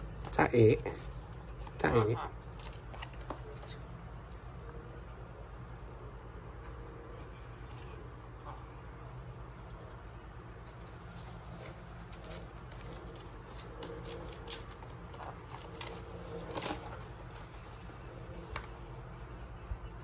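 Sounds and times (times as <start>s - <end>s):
faint low hum: 0.0s - 20.0s
claws and beaks scratching plastic: 10.0s - 19.0s.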